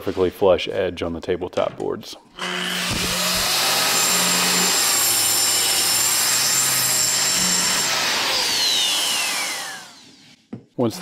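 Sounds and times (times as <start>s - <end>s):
circular saw cutting wood: 2.4s - 10.4s.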